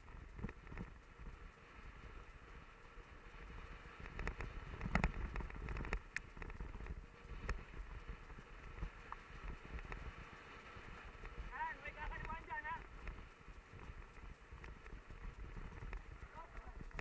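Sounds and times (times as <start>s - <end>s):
wind on microphone: 3.2s - 17.0s
bike clicks and rattles: 3.5s - 10.2s.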